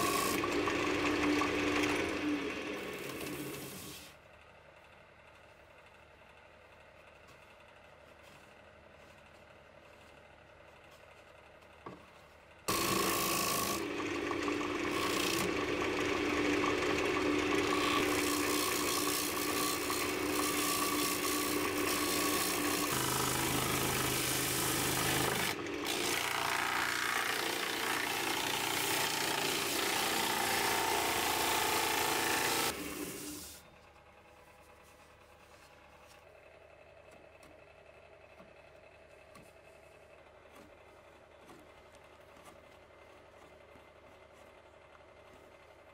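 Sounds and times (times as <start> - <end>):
lathe humming: 0.0 - 4.1, 12.7 - 33.8.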